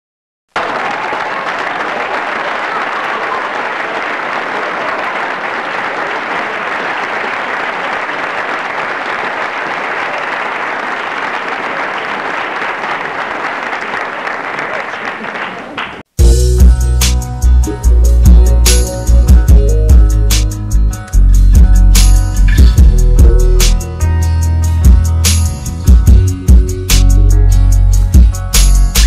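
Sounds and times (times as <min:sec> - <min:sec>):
audience applause: 0:00.5 - 0:16.1.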